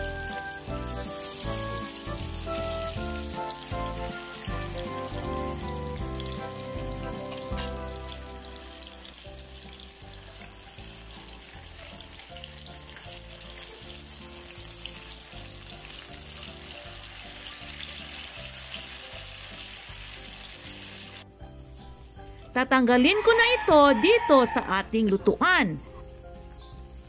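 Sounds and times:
spring rolls sizzling in hot oil: 0:00.0 - 0:21.2
background music: 0:00.0 - 0:27.0.

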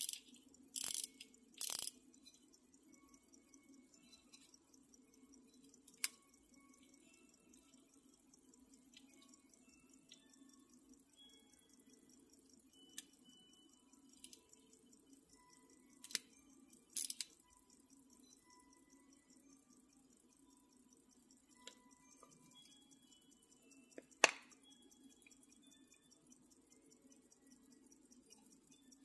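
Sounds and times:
pocket watch clicks: 0:00.0 - 0:04.7, 0:05.5 - 0:08.0, 0:15.8 - 0:19.0
faint metallic pings: 0:17.5 - 0:29.0.

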